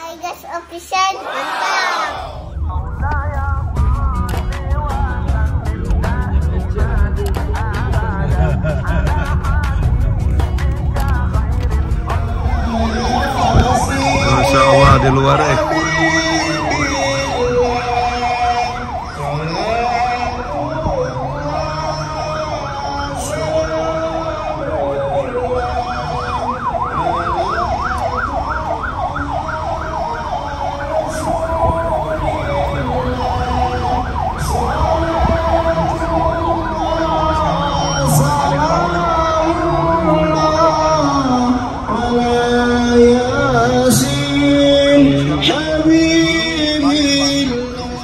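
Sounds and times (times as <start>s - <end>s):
sirens wailing: 1.4s - 9.6s, 11.2s - 48.0s
siren yelping sweep: 12.4s - 39.0s.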